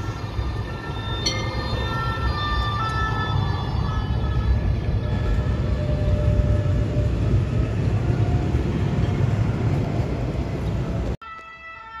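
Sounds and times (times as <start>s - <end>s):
two-tone siren: 0.0s - 8.9s, 11.2s - 12.0s
heavy traffic rumble: 0.0s - 11.2s.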